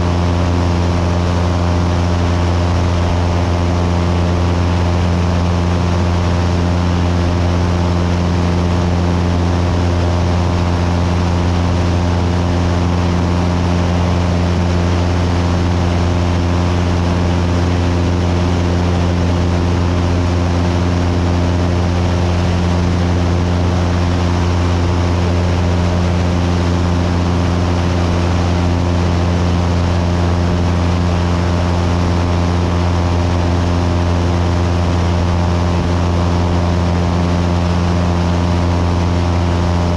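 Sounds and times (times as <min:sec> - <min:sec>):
propeller plane engine droning: 0:00.0 - 0:39.9.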